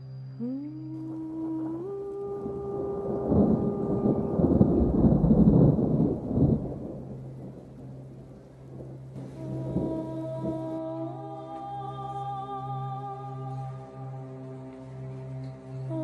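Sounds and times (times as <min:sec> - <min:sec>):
background music: 0:00.0 - 0:16.0
deep rumble: 0:01.0 - 0:13.6.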